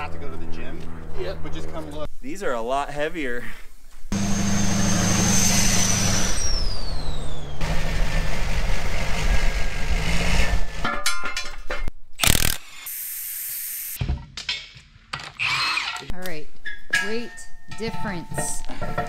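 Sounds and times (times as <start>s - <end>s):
high turbo whine: 4.1s - 10.8s
sharp clicks: 12.2s - 12.9s.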